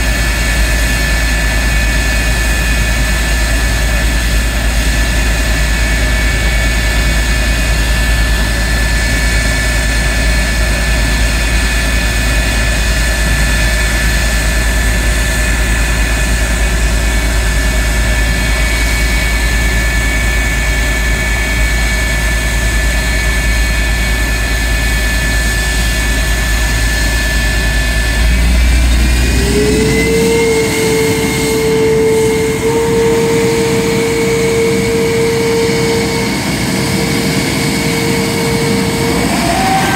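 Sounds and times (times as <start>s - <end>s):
jet engine roar with high whine: 0.0s - 39.9s.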